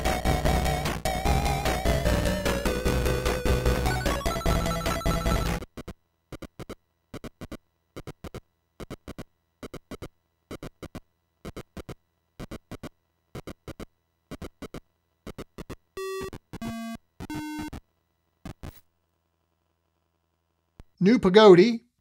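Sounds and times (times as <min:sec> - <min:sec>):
buzzy game beeps: 0:00.2 - 0:05.6.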